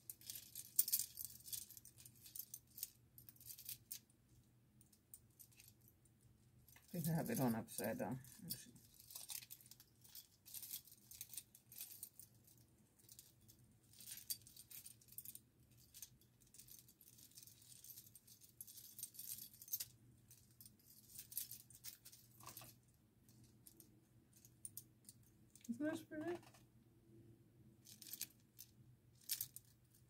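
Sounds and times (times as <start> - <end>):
bracelet pieces clinking: 27.8 - 30.0.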